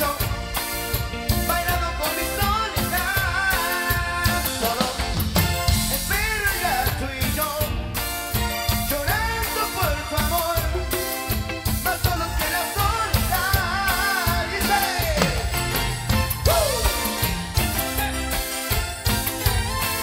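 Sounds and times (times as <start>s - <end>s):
bass guitar: 0.0s - 20.0s
drum kit beat: 0.0s - 20.0s
electric guitar: 0.0s - 20.0s
wavering melody line: 12.2s - 20.0s.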